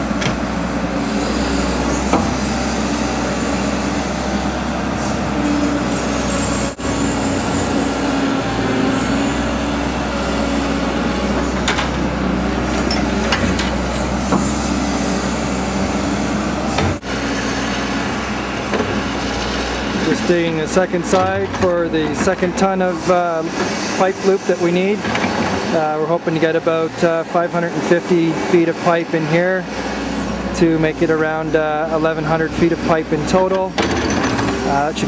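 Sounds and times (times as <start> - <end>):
excavator diesel engine under load: 0.0 - 35.0.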